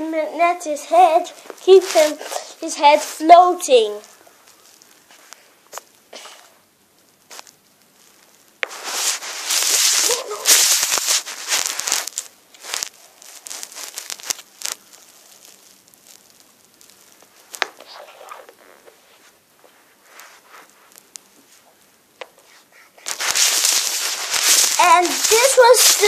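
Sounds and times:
loud rustling scrape: 1.8s - 3.2s, 8.7s - 14.3s, 22.4s - 26.0s.

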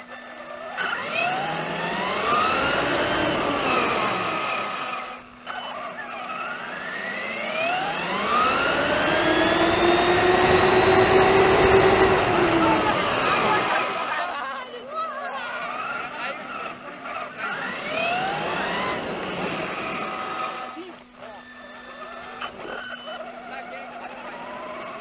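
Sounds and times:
rc truck motor whine: 0.0s - 25.0s.

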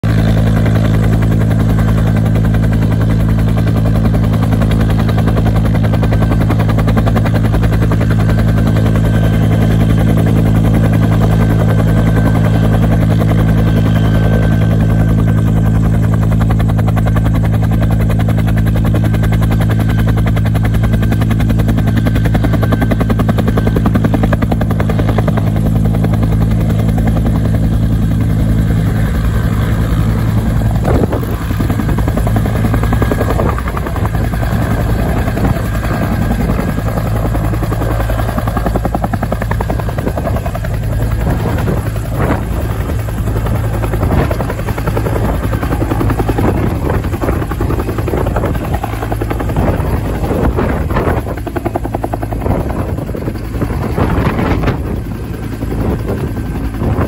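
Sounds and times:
helicopter rotor beat: 0.0s - 57.0s
helicopter turbine whine: 0.0s - 57.0s.

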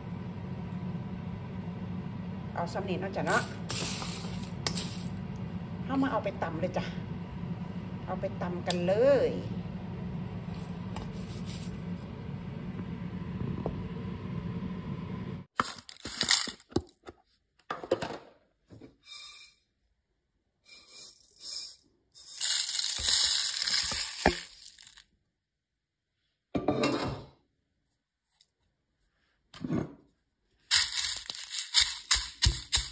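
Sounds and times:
dry rice rattling into mortar: 3.7s - 5.1s, 15.6s - 16.6s, 20.7s - 25.0s, 30.7s - 32.9s
stirring in a dry pan: 22.2s - 25.0s.

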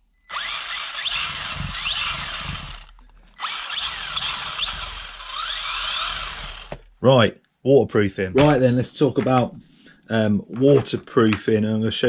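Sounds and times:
rc car electric motor whining: 0.3s - 6.8s.

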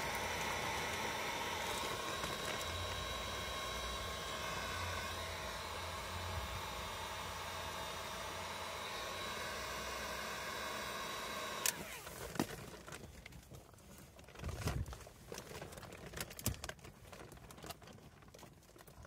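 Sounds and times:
hands working plastic fitting: 0.0s - 6.9s
heat gun whirring: 0.0s - 12.6s.

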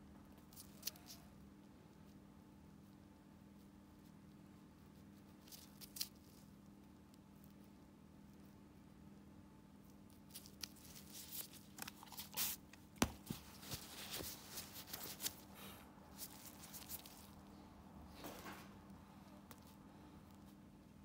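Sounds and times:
medical gloves rustling: 10.2s - 17.5s.

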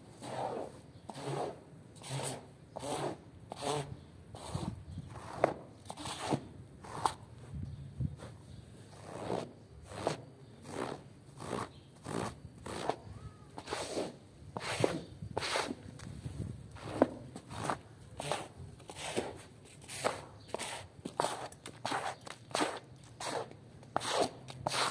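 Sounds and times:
scraper swishing through wet foam: 0.1s - 7.0s, 13.6s - 15.8s, 16.8s - 24.9s.

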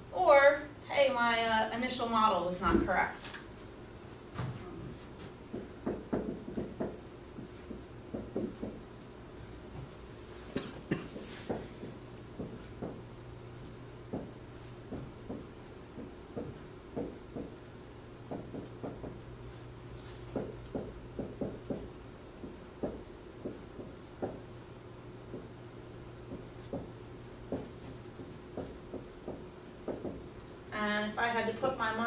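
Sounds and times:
steady low hum: 0.0s - 32.0s
marker writing on whiteboard: 5.1s - 30.4s.

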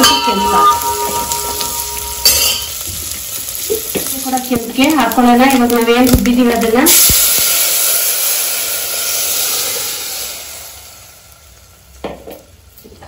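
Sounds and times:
hot oil hissing and sizzling: 0.0s - 13.0s.

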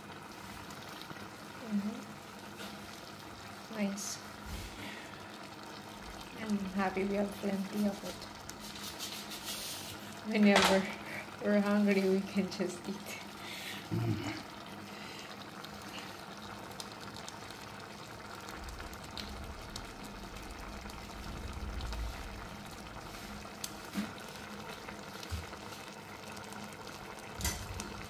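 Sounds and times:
pot bubbling with small pops: 0.0s - 13.4s, 14.1s - 28.0s
low rumble: 19.1s - 23.0s.

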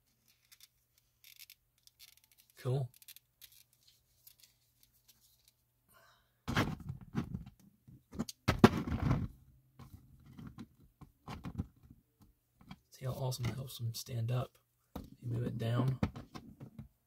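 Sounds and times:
plastic figure knocks and clicks: 15.8s - 17.0s.

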